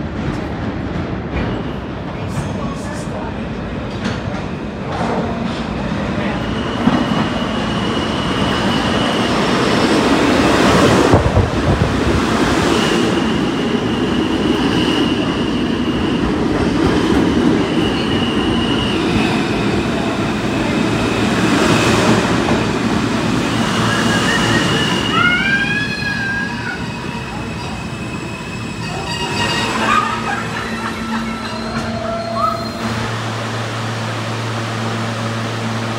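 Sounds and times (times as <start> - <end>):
train wheels rumbling on rail: 0.0 - 35.9
high wheel squeals: 23.5 - 32.9.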